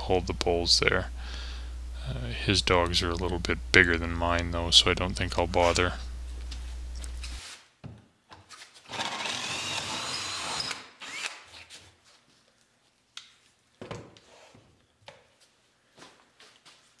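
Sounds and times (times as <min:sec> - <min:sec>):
cordless drill boring wood: 0:08.9 - 0:11.4.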